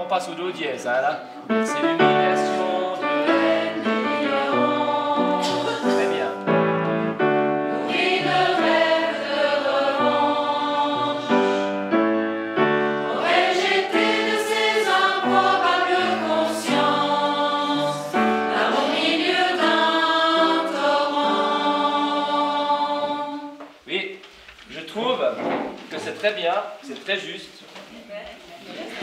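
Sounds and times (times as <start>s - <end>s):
grand piano accompaniment: 0.0s - 23.6s
mixed choir singing: 1.8s - 23.7s.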